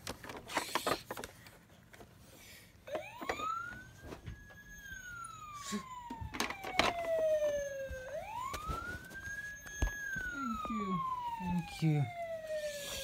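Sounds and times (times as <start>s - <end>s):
police siren wailing: 2.8s - 13.0s.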